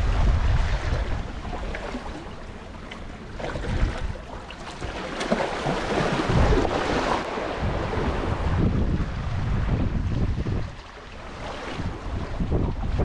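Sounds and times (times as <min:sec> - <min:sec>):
sea waves splashing on concrete: 0:00.0 - 0:07.5
wind buffeting microphone: 0:00.0 - 0:13.0.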